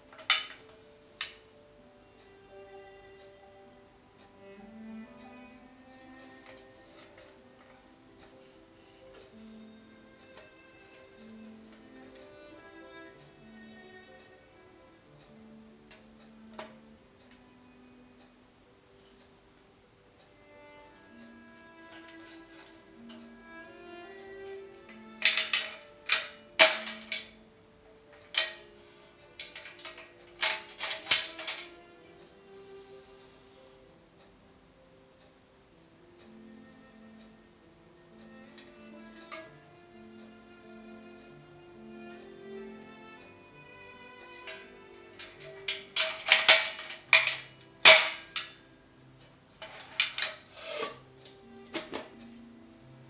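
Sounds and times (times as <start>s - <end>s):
soft string music: 0.0s - 53.0s
metal lids clinking: 0.1s - 1.4s, 25.2s - 27.4s, 28.2s - 28.7s, 29.4s - 31.7s, 44.4s - 48.6s, 49.6s - 51.0s.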